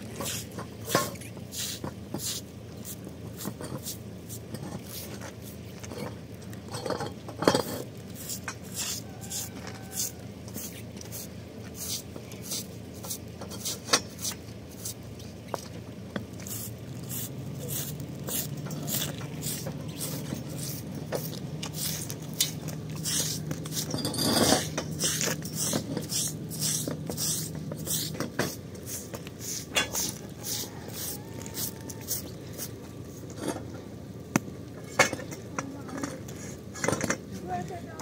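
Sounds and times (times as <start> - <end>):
broom sweeping wet concrete: 0.0 - 6.0, 7.6 - 33.3
metal pipes clinking: 0.2 - 1.2, 4.5 - 9.0, 18.6 - 28.6.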